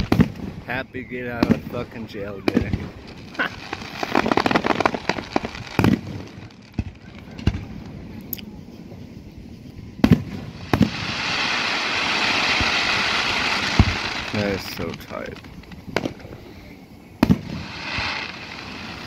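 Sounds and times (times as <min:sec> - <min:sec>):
firework booms: 0:00.0 - 0:08.2, 0:09.9 - 0:19.0
firework crackling pops: 0:00.0 - 0:09.1, 0:09.8 - 0:19.0
steady hissing wash: 0:00.0 - 0:19.0.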